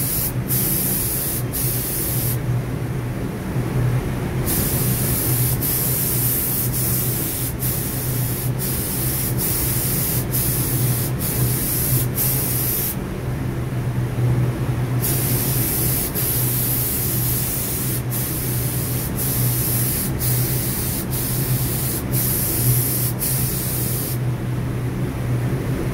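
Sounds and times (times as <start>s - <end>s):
paint spray gun hissing: 0.0s - 2.4s, 4.5s - 13.0s, 15.0s - 24.2s
steady low hum: 0.0s - 25.9s.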